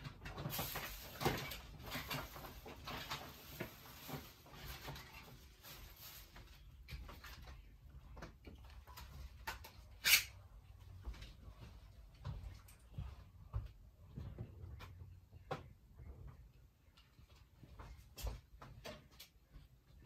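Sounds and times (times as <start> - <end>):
small knocks clicks and rustles: 10.8 - 19.8.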